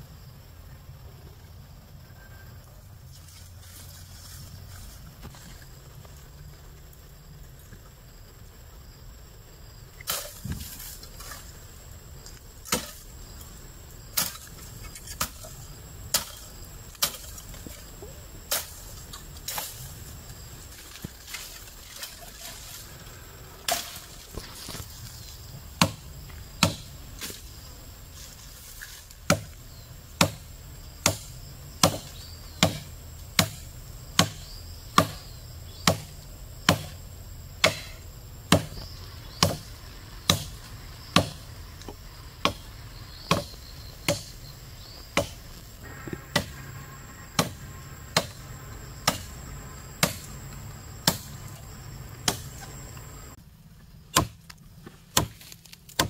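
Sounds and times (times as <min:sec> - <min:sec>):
tool chopping into wood: 0:12.6 - 0:13.0, 0:16.1 - 0:17.3, 0:23.7 - 0:24.8, 0:25.8 - 0:26.0, 0:26.6 - 0:27.4, 0:29.2 - 0:29.6, 0:30.2 - 0:37.0, 0:37.6 - 0:39.7, 0:40.3 - 0:42.7, 0:43.3 - 0:44.4, 0:45.1 - 0:46.6, 0:47.4 - 0:48.4, 0:49.0 - 0:49.4, 0:50.0 - 0:50.3, 0:51.0 - 0:51.4, 0:52.2 - 0:52.7, 0:54.1 - 0:56.0.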